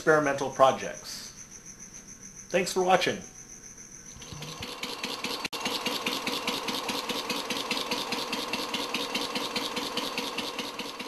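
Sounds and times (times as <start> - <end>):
small gasoline engine pulsing: 4.1 - 11.0.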